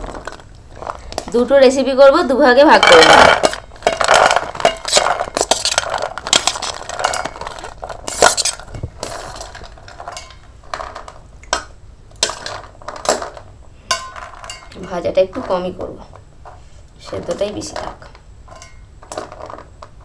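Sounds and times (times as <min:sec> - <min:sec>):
spoon scraping and clinking on metal: 0:13.9 - 0:15.8, 0:18.5 - 0:19.4.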